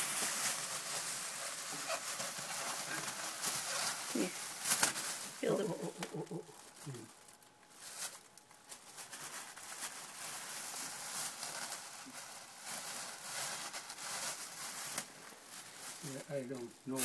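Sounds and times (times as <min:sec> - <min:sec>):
plastic bag rustling: 0:00.0 - 0:17.0.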